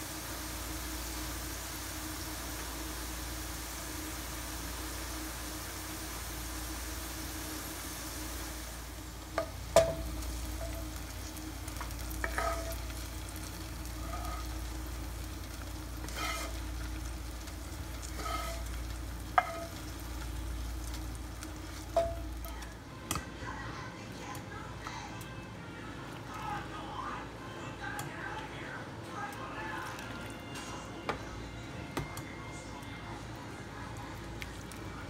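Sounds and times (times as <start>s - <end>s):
shallots sizzling in oil: 0.0s - 23.2s.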